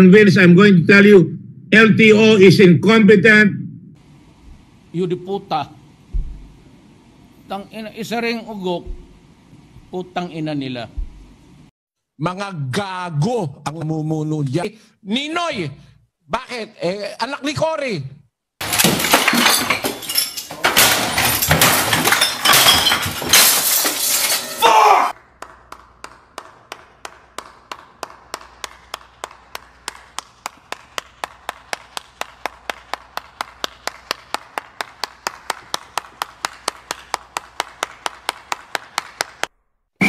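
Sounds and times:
things crashing and smashing: 18.6s - 24.8s
person clapping slowly: 25.2s - 39.5s.

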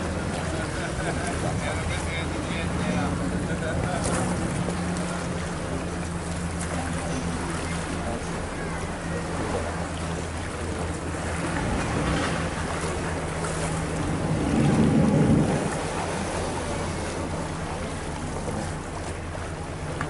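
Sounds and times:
boat engine running: 0.0s - 20.0s
water noise: 0.0s - 20.0s
wind on microphone: 13.5s - 17.1s.

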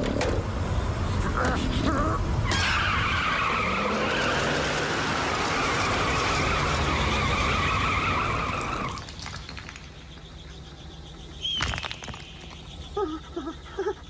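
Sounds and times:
cartoon tyres screeching: 1.0s - 9.1s.

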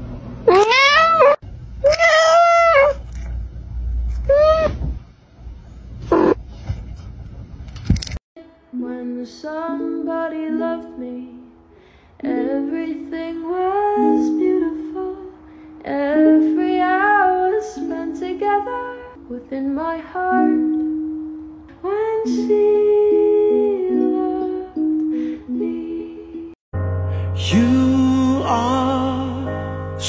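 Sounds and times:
person singing: 8.4s - 11.6s, 12.2s - 20.9s, 21.8s - 30.0s.

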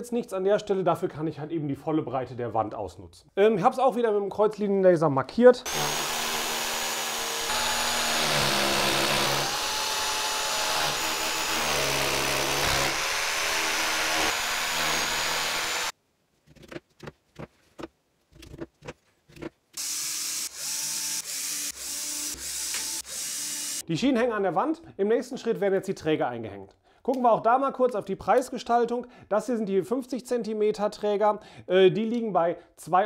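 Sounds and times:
corded drill boring into wall: 5.7s - 15.9s, 19.8s - 23.8s
cordless drill driving screws: 5.7s - 15.9s, 19.8s - 23.8s.

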